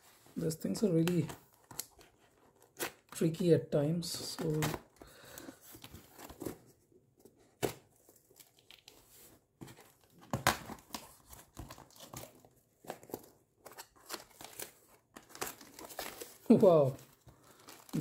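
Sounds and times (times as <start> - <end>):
cardboard rustling and scraping: 5.6 - 18.0.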